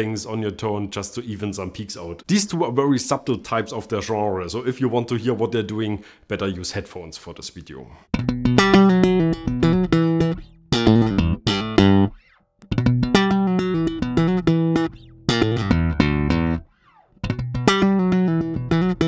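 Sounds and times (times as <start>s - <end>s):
electric bass plucked notes: 8.1s - 19.0s.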